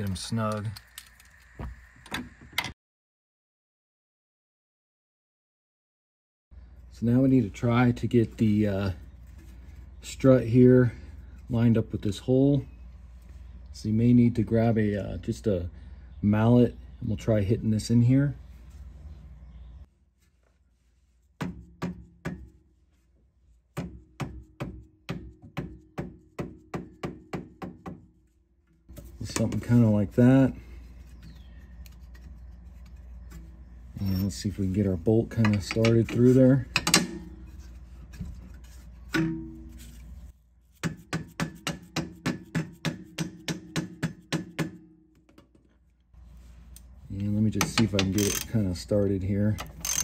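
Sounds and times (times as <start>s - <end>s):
hammer tapping metal bolt: 36.8s - 37.3s
mallet striking metal strut: 39.1s - 39.7s.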